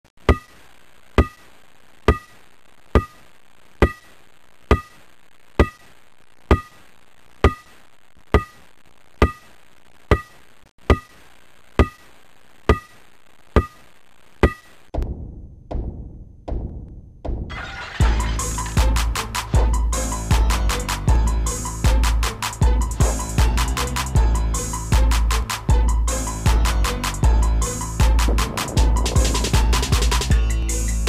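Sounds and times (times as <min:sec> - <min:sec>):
music with drums: 0:18.0 - 0:31.0.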